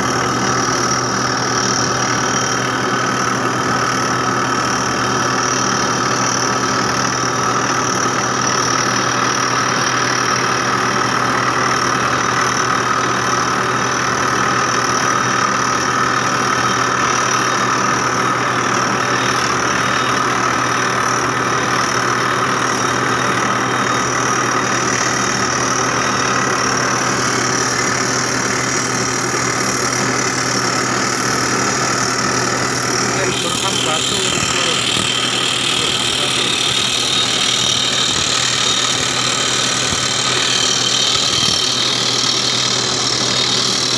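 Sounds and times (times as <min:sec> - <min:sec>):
drill rig engine running: 0:00.0 - 0:43.9
rock drill hammering: 0:19.6 - 0:43.9.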